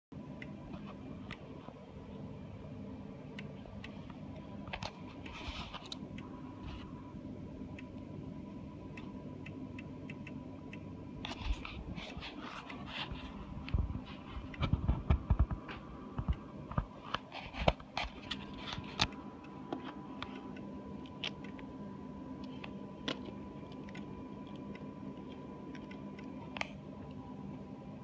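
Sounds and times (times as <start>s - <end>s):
low hum: 0.1s - 28.0s.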